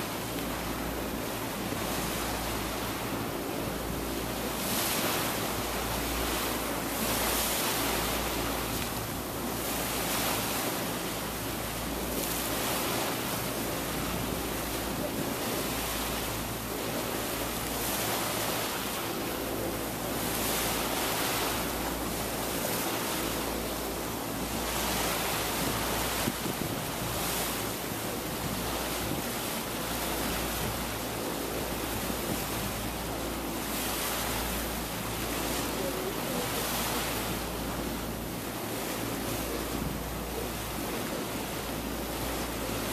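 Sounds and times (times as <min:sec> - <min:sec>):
water rushing past a boat hull: 0:00.0 - 0:42.9
wind buffeting microphone: 0:24.2 - 0:32.8.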